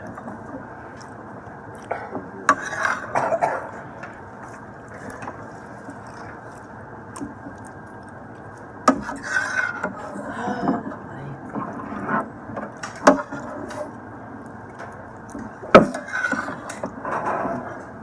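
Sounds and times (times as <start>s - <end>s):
fork scraping a plate: 2.5s - 3.4s, 8.9s - 10.0s, 15.8s - 17.8s.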